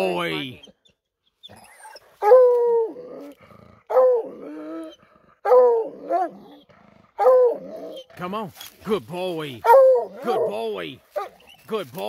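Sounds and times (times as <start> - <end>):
hound bawling: 0.0 - 8.8, 9.5 - 11.8
dog barking: 2.2 - 2.6, 3.9 - 4.3, 5.4 - 6.4, 7.2 - 7.6, 9.6 - 11.4.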